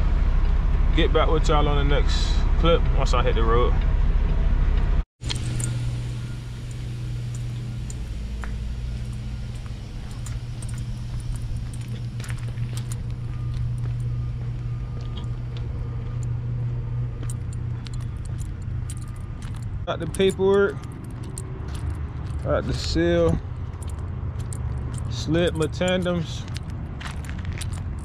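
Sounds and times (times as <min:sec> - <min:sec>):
keys jingling: 0:05.3 - 0:15.5, 0:16.1 - 0:28.0
diesel truck idling: 0:05.3 - 0:27.7.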